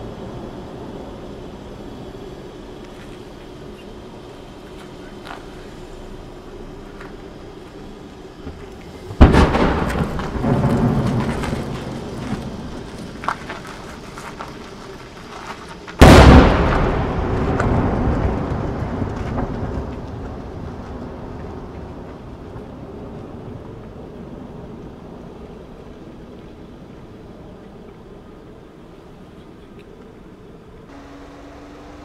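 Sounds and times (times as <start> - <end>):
firework booms with echo: 9.2 - 12.6, 16.0 - 21.2.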